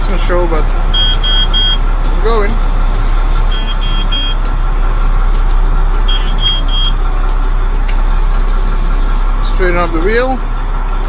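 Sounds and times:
diesel engine idling: 0.0s - 11.0s
warning buzzer beeping: 0.9s - 2.4s, 3.4s - 4.6s, 5.6s - 7.0s.

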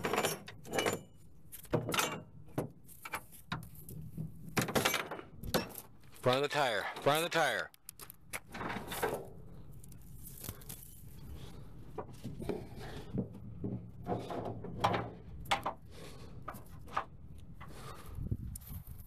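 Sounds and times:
metal chain clinking and rattling: 0.0s - 1.2s, 1.8s - 2.3s
steady low hum: 8.2s - 18.6s.

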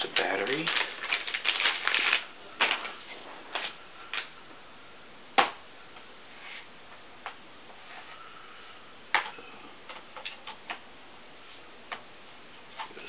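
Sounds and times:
plastic bag crinkling: 0.0s - 4.3s.

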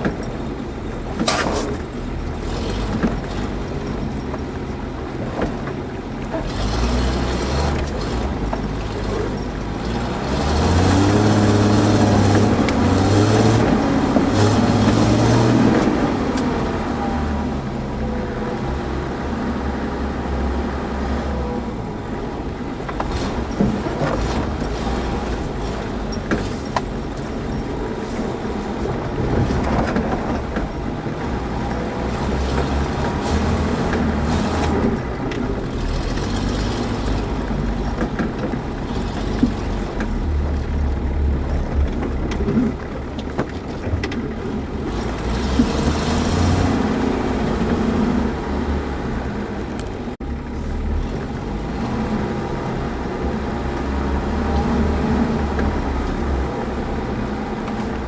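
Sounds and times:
vehicle knocks and rattles: 0.0s - 16.8s, 22.4s - 48.4s
off-road vehicle engine rumbling: 0.0s - 58.0s.

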